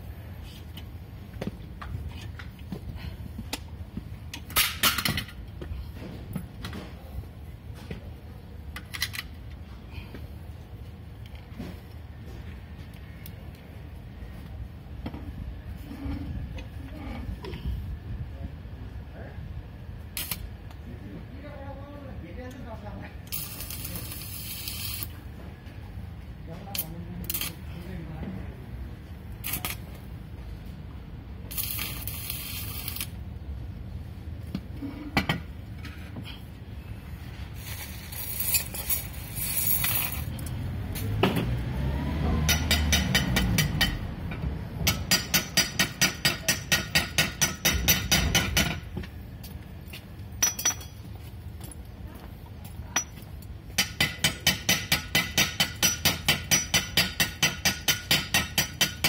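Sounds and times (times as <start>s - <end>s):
welding arc crackle: 20.1s - 20.5s, 23.2s - 25.2s, 26.8s - 27.6s, 29.3s - 30.0s, 31.4s - 33.2s, 37.6s - 40.3s
rapid metal-on-metal strikes: 42.4s - 44.1s, 44.8s - 48.9s, 53.8s - 59.0s.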